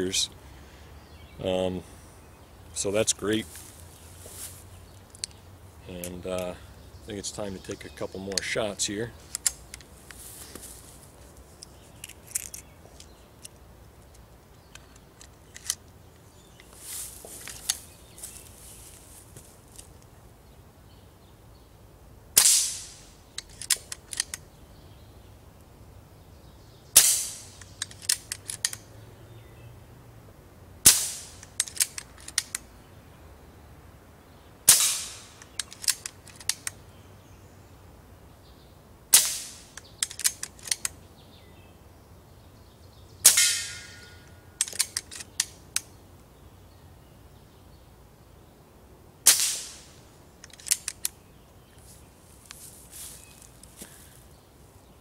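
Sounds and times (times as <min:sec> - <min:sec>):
metallic bolt clicks: 0:09.2 - 0:10.2, 0:11.6 - 0:15.9, 0:23.4 - 0:24.4, 0:27.0 - 0:28.8, 0:31.3 - 0:32.6, 0:35.1 - 0:36.8, 0:39.2 - 0:41.0, 0:43.3 - 0:45.9, 0:50.4 - 0:51.2
air rifle shot crack: 0:22.4 - 0:23.0, 0:30.8 - 0:31.4, 0:34.7 - 0:35.4, 0:43.2 - 0:44.1, 0:49.2 - 0:49.9.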